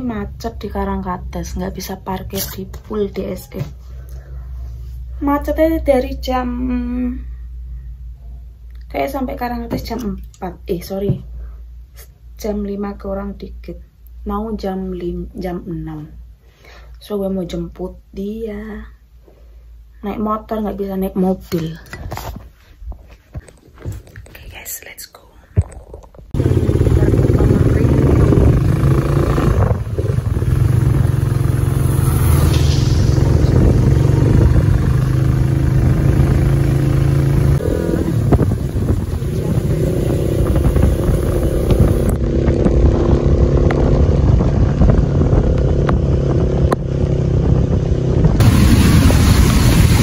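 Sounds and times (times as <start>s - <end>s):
wind noise on microphone: 26.2s - 36.4s, 37.5s - 50.0s
motorcycle engine running: 26.4s - 50.0s.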